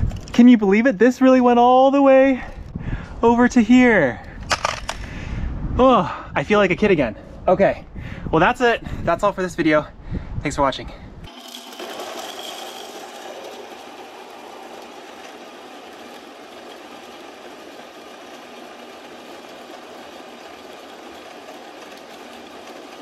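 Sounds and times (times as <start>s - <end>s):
electric coffee grinder running: 11.3s - 23.0s.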